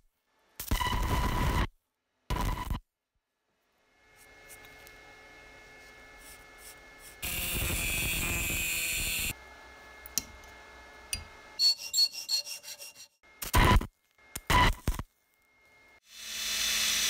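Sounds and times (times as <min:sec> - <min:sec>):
angle grinder cutting steel: 0:06.6 - 0:09.4, 0:11.6 - 0:13.2.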